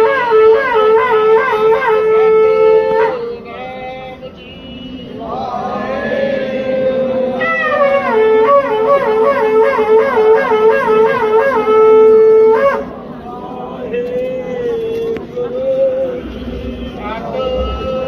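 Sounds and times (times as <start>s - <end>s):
wind instrument playing tune: 0.0s - 3.4s, 6.7s - 13.1s.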